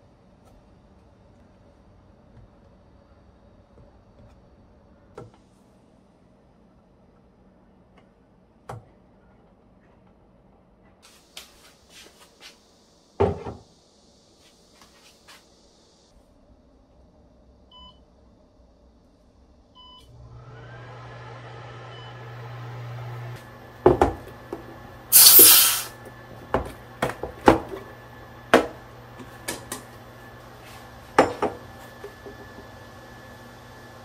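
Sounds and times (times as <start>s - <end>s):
cooktop humming: 20.1s - 34.0s
cooktop beeps: 25.1s - 25.9s.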